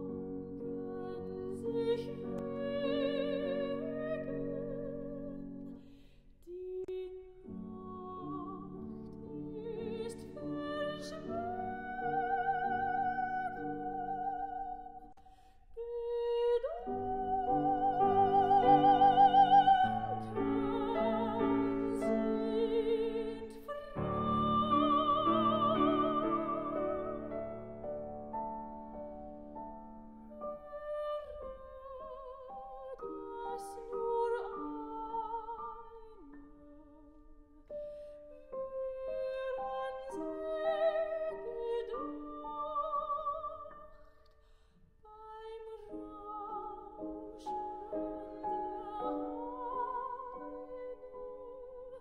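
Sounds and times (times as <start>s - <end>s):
soprano singing with vibrato: 0.0s - 5.8s, 6.4s - 44.2s, 45.0s - 52.0s
piano accompaniment: 16.6s - 37.0s.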